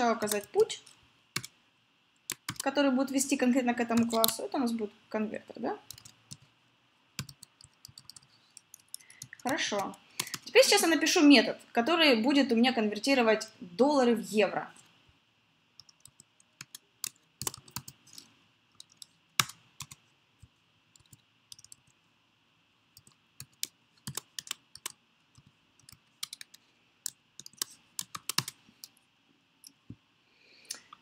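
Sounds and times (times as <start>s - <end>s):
computer keyboard typing: 0.2s - 0.6s, 2.3s - 2.7s, 3.9s - 4.4s, 5.8s - 6.5s, 7.2s - 10.6s, 15.8s - 20.0s, 21.0s - 22.0s, 23.0s - 29.0s.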